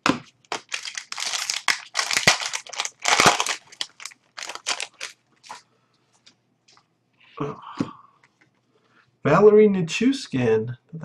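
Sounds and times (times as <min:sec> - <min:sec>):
foil wrapper crinkling and tearing: 0:00.5 - 0:05.6.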